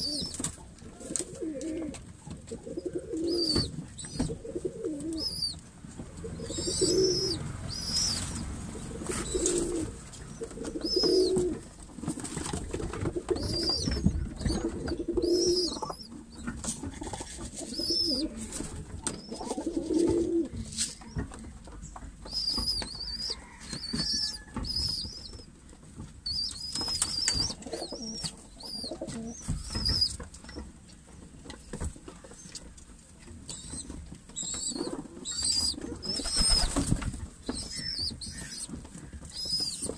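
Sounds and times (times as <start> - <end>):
pigeons cooing: 0.0 - 11.7, 12.9 - 20.6, 26.3 - 30.2, 33.5 - 36.9
beaks pecking at feed: 0.0 - 39.9.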